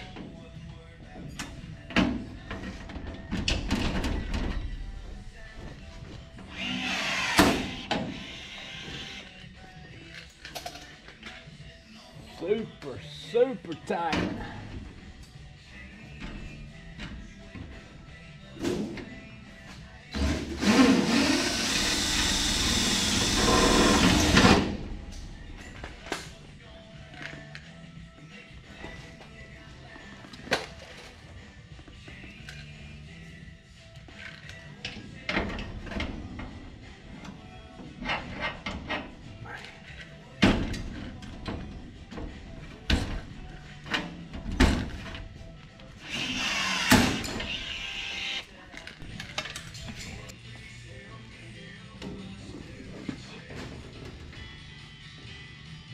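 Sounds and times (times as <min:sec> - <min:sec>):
background music: 0:00.0 - 0:55.9
cordless drill on metal panel: 0:06.5 - 0:09.2, 0:21.0 - 0:24.4, 0:46.0 - 0:48.4.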